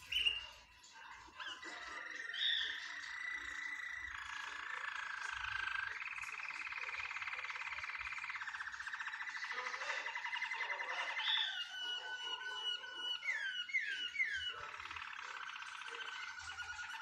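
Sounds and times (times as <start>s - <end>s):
canary singing trills: 0.0s - 17.0s.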